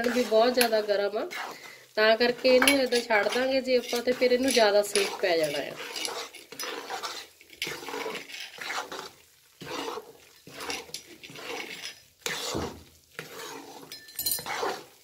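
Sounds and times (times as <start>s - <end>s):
metal spatula scraping metal pan: 0.0s - 15.0s.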